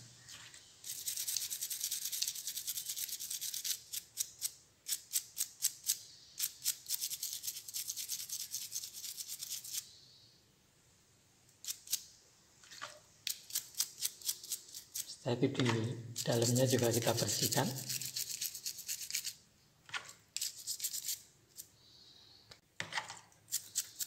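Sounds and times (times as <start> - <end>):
toothbrush scrubbing metal ring: 0.8 - 9.8, 16.2 - 19.4, 20.4 - 21.2, 23.5 - 24.0.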